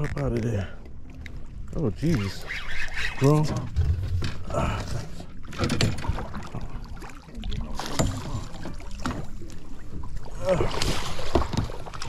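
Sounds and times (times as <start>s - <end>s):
water splashing against boat hull: 1.8s - 12.0s
low rumble: 3.6s - 5.3s.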